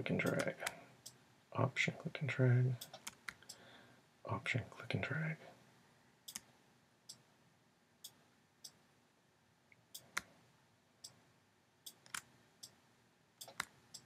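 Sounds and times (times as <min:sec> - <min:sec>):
faint room hiss: 0:00.0 - 0:14.0
computer mouse clicks: 0:02.8 - 0:03.6, 0:11.9 - 0:12.8, 0:13.4 - 0:14.0.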